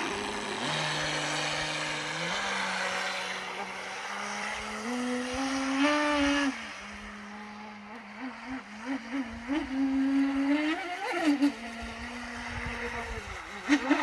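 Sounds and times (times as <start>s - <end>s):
electric motor whine: 0.0s - 14.0s.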